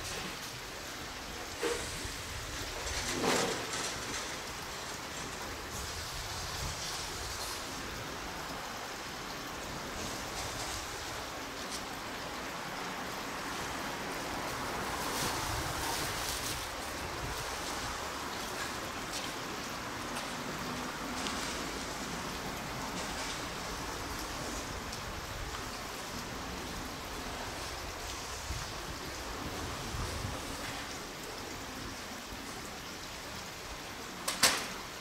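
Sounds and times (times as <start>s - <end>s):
wind on microphone: 5.6s - 8.2s, 14.7s - 18.3s, 27.0s - 31.0s.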